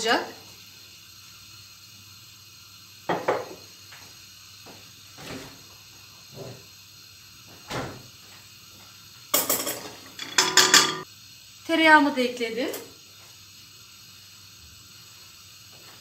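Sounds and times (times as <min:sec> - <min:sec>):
glass bowl clattering on pot: 0:09.4 - 0:11.0.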